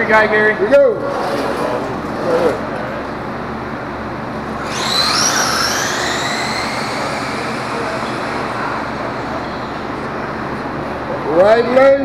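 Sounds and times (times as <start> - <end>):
electric motors whining: 1.2 - 11.5.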